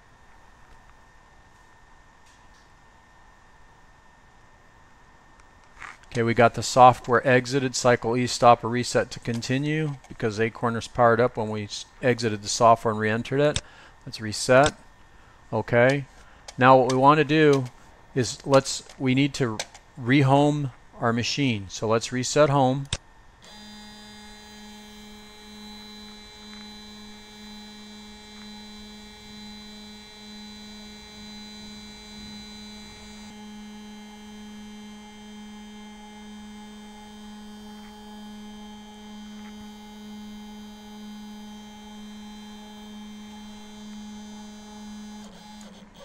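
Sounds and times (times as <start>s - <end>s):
motor whine: 23.4s - 46.0s
stepper motor humming: 23.4s - 46.0s.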